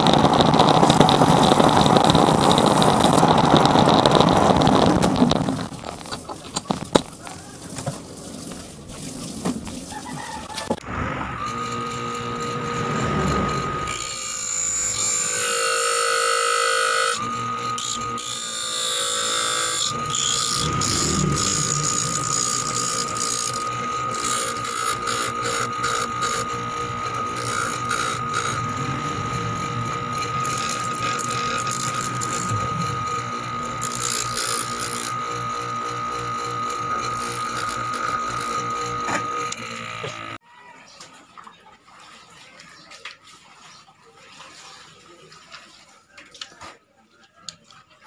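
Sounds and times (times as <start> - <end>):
bench grinder whining: 0.0 - 7.2, 10.3 - 40.4
metal rasping on grinding stone: 12.4 - 40.2.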